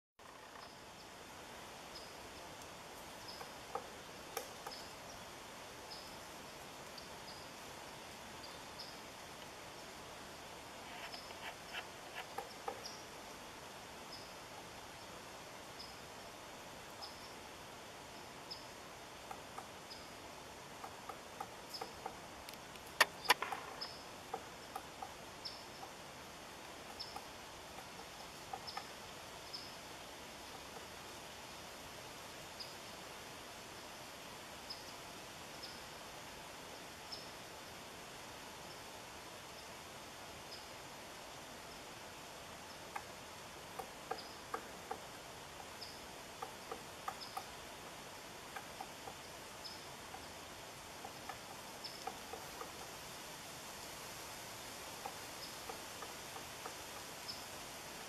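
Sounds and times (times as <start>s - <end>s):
steady hiss: 0.2s - 58.0s
loud sharp clicks: 22.8s - 23.8s.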